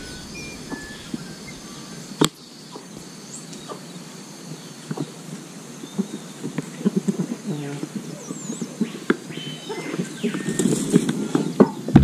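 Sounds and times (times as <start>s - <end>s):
high whistle calls: 0.0s - 3.8s, 8.1s - 11.6s
insects buzzing: 0.0s - 12.0s.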